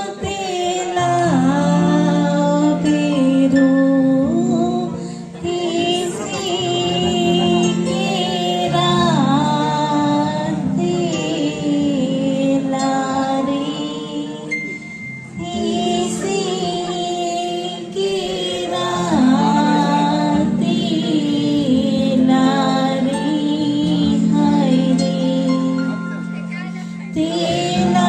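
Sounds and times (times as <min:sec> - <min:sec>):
woman singing through pa system: 0:00.0 - 0:26.0, 0:26.6 - 0:28.0.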